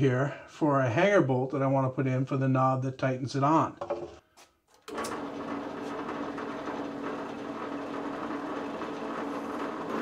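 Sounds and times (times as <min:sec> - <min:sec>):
drill press motor humming: 0:04.8 - 0:10.0
drill bit boring into wood: 0:04.9 - 0:10.0.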